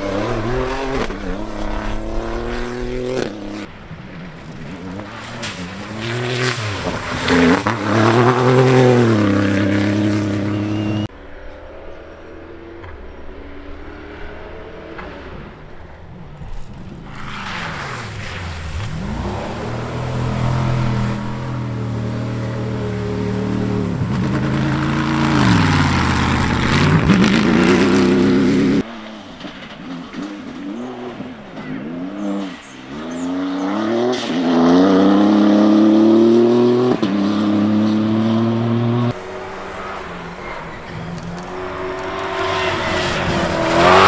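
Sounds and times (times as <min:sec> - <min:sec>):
car engine revving: 0:00.0 - 0:03.8, 0:04.5 - 0:11.1, 0:12.2 - 0:44.0.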